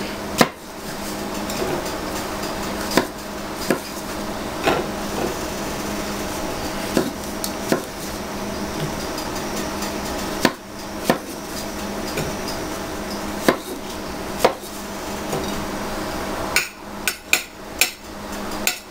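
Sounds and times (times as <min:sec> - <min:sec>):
knife chopping on wooden board: 0:00.4 - 0:00.6, 0:02.9 - 0:04.0, 0:06.9 - 0:08.2, 0:10.4 - 0:12.4, 0:13.4 - 0:13.8, 0:14.4 - 0:15.4.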